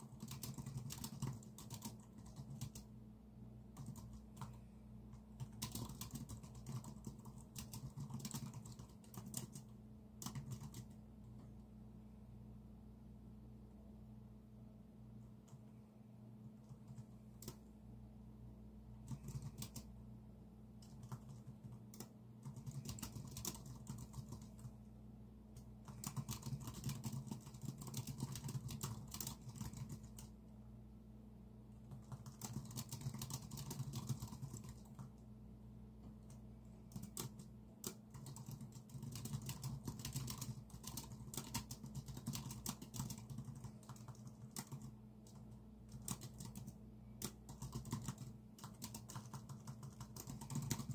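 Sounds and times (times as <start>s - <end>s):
typing on a computer keyboard: 0.0s - 2.9s, 3.7s - 11.5s, 16.5s - 17.7s, 19.0s - 19.9s, 20.8s - 24.8s, 25.6s - 30.4s, 31.8s - 35.2s, 36.0s - 50.9s
steady low hum: 0.0s - 50.9s.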